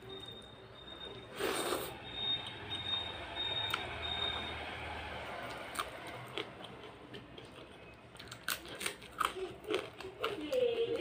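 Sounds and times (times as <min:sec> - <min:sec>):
person chewing food: 0:05.4 - 0:11.0.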